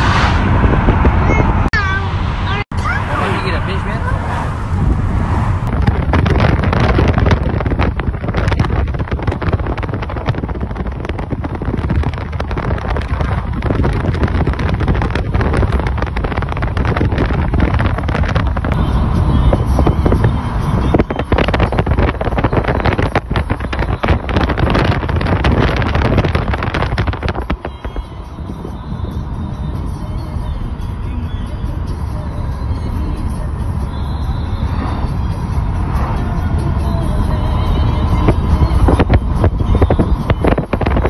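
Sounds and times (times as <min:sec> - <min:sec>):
wind buffeting microphone: 0:00.0 - 0:02.6, 0:04.0 - 0:30.2, 0:34.2 - 0:41.0
car road noise rumble: 0:00.0 - 0:41.0.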